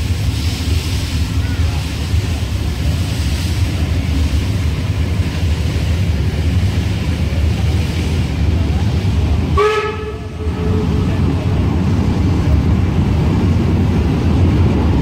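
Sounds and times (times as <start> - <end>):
train rumbling: 0.0 - 15.0
train horn: 9.5 - 11.2.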